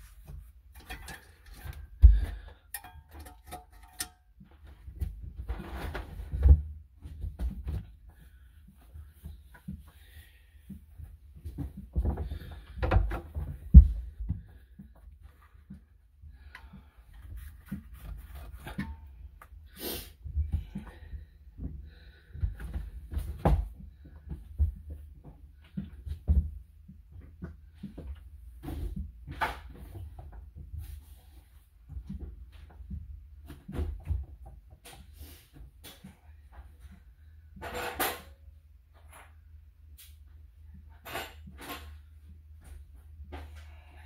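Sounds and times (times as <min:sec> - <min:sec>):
hands clicking and rubbing on hoses: 0:00.0 - 0:05.2.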